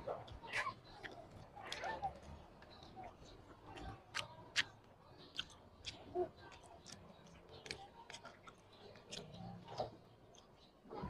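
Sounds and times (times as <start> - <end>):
person chewing: 0.2 - 2.8, 3.7 - 9.6.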